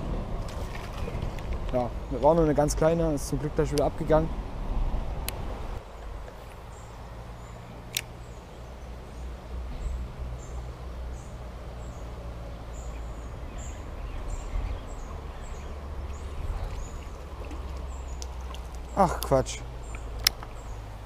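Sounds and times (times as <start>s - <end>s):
small stream flowing: 5.4s - 21.0s
bird chirping: 5.9s - 21.0s
sharp click: 7.9s - 8.1s.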